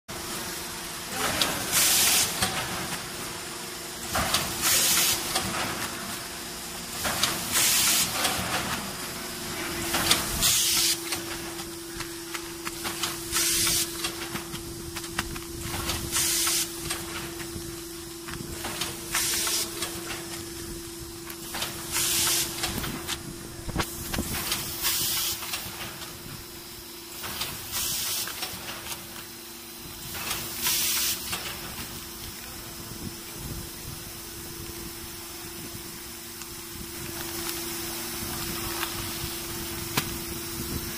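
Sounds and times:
machine hum: 0.1s - 27.8s
air hiss bursts: 0.2s - 40.9s.

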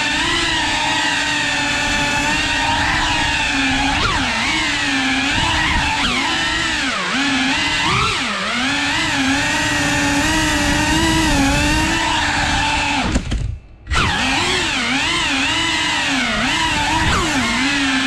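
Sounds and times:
drone propellers buzzing: 0.0s - 18.0s.

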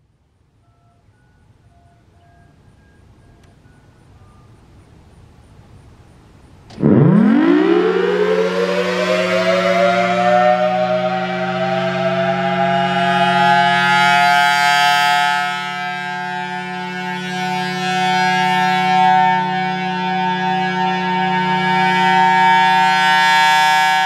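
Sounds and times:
warning siren: 0.6s - 5.4s, 6.7s - 24.0s
low hum: 6.5s - 14.5s.

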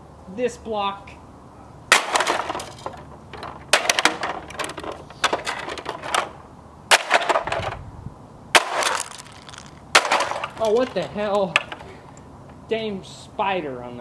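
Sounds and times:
concrete block crunching plastic: 1.9s - 7.8s, 8.6s - 11.9s
plastic cracking and splintering: 8.6s - 11.0s.

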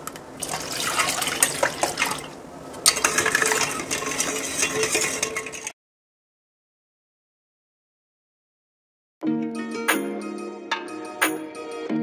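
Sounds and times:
liquid swishing: 0.4s - 5.8s
ice clinking against steel bowl: 2.8s - 5.7s.

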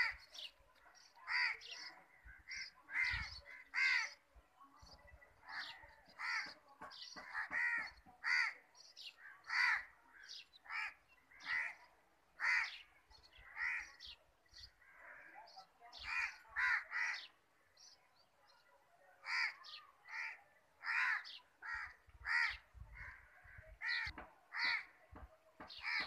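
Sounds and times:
crow cawing: 9.4s - 9.9s, 12.4s - 12.8s, 16.1s - 17.3s, 19.2s - 24.9s.

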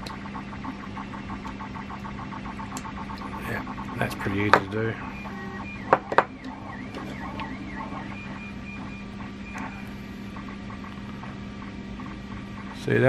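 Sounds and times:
sharp plastic clicks: 0.0s - 4.9s
machine hum with wavering whine: 0.0s - 13.0s.

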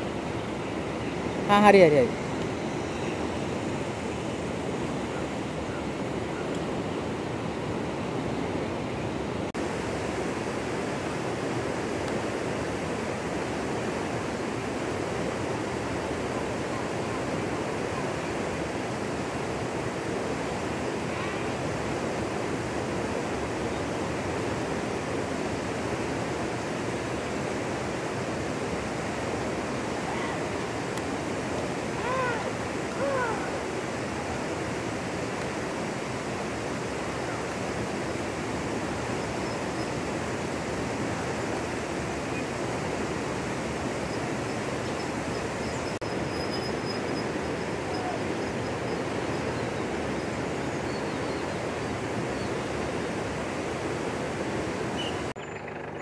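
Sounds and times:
flowing canal water: 0.0s - 56.0s
short pitched calls: 31.9s - 33.8s.

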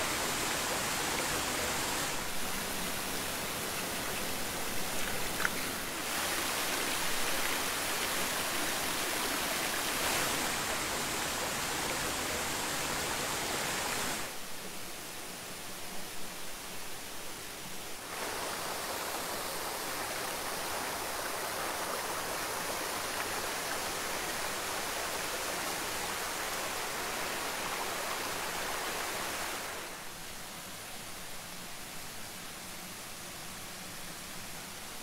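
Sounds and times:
waterfall rushing: 0.0s - 14.4s, 18.0s - 30.0s.

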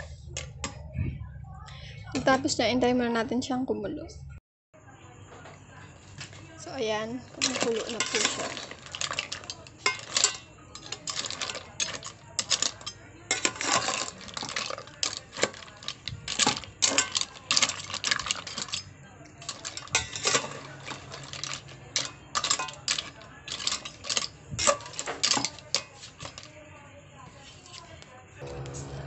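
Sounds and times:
spoon clinking against pot and shells: 7.3s - 26.6s.

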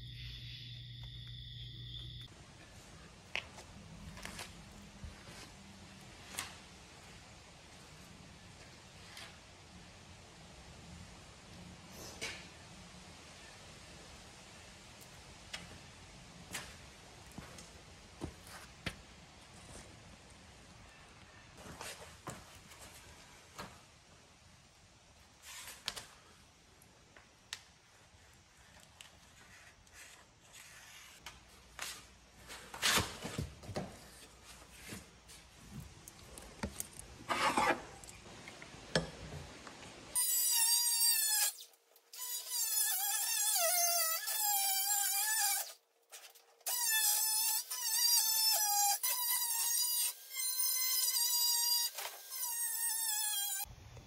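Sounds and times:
power tool cutting plastic: 40.2s - 45.8s, 46.6s - 53.7s.

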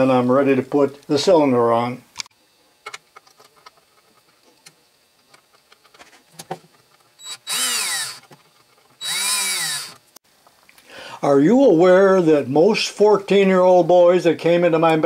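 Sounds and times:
cordless drill driving screw: 7.2s - 8.3s, 9.0s - 10.0s.

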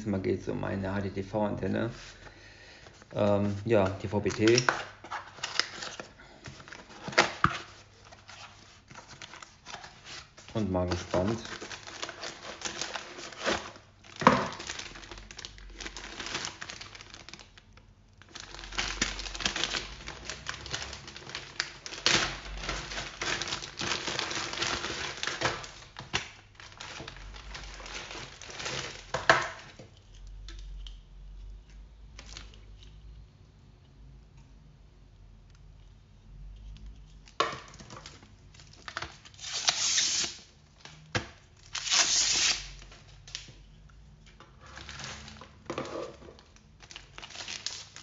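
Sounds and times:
plastic bag crinkling: 3.0s - 30.2s, 44.6s - 48.0s.

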